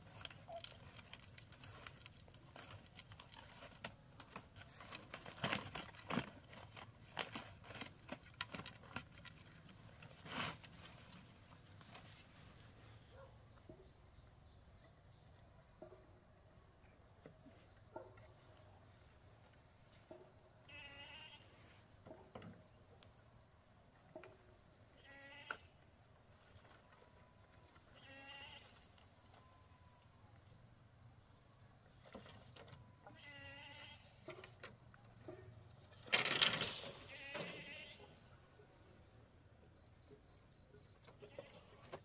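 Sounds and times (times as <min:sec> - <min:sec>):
animal bleating: 0:20.7 - 0:21.5, 0:25.0 - 0:25.7, 0:28.0 - 0:28.8, 0:33.1 - 0:34.2, 0:37.1 - 0:38.1.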